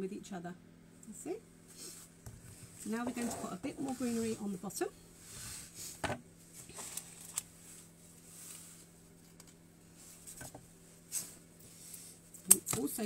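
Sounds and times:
leaves and stems rustling: 6.5s - 10.4s.

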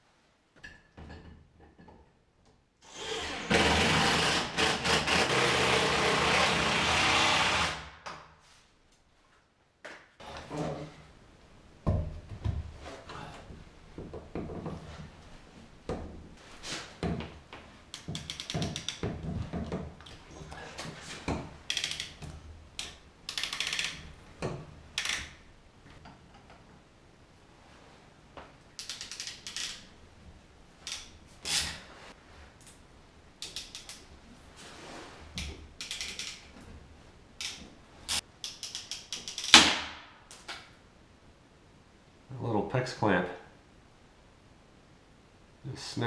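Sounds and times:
sharp loud snap: 39.5s - 40.2s.

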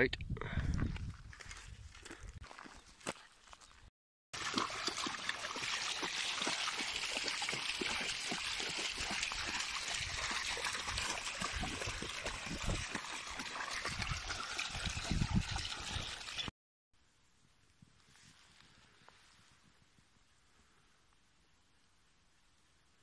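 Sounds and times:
small stream running: 2.0s - 16.5s.

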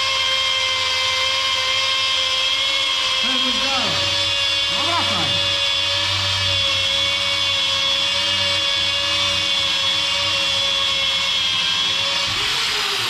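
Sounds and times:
power sander whining: 0.0s - 13.0s.

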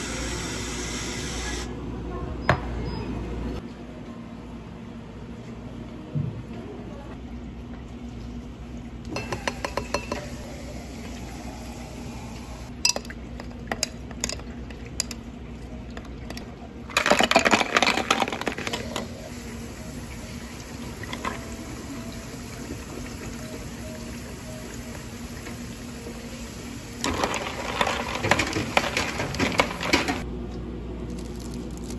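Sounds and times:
ice clattering into glass: 16.9s - 19.1s.

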